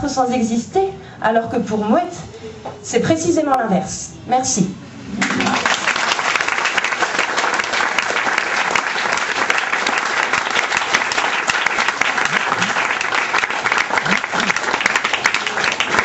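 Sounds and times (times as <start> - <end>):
audience applauding: 5.2 - 16.0.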